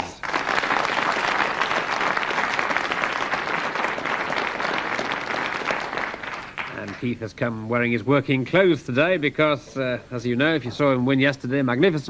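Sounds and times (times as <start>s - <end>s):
audience applauding: 0.0s - 7.2s.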